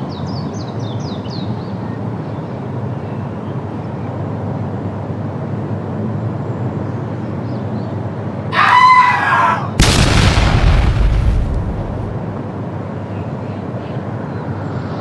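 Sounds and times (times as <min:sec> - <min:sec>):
rooster crowing: 0:08.5 - 0:09.8
loud boom: 0:09.8 - 0:12.3.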